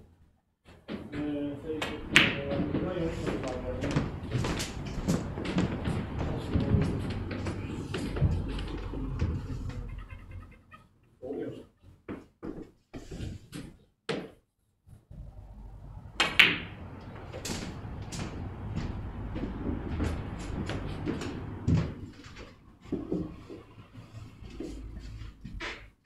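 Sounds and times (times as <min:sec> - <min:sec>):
snooker balls clicking: 0:01.8 - 0:10.3, 0:16.2 - 0:18.6.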